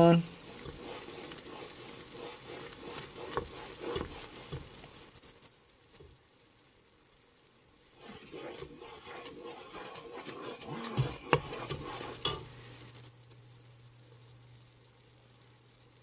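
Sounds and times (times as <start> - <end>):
wooden spoon scraping metal pot: 0.0 - 5.2, 7.9 - 12.8
low steady hum: 0.0 - 16.0
syrup bubbling: 0.0 - 16.0.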